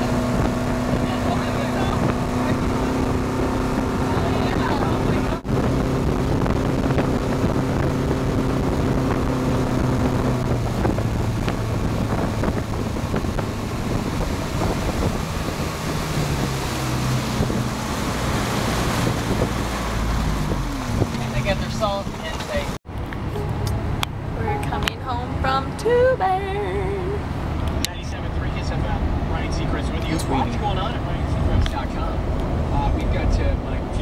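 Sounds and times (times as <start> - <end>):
water rushing: 0.0 - 33.8
motorboat engine running: 0.0 - 34.0
wind buffeting microphone: 0.0 - 34.0.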